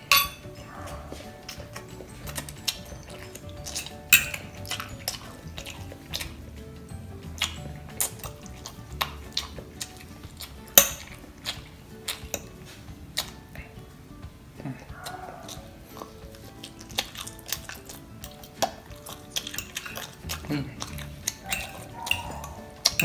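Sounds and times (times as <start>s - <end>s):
soft background music: 0.0s - 23.0s
fork scraping glass dish: 21.4s - 23.0s.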